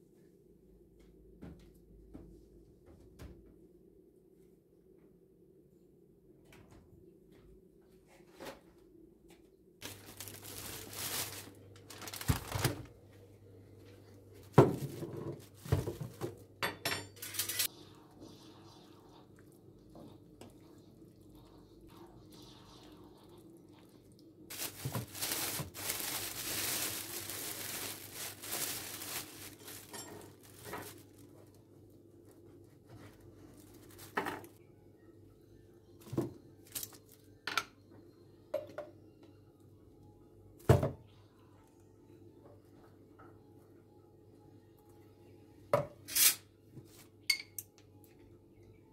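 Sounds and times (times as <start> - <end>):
crinkling and rustling: 9.8 - 16.4, 24.5 - 34.6
dishes and utensils clattering: 14.8 - 17.7, 29.5 - 31.0.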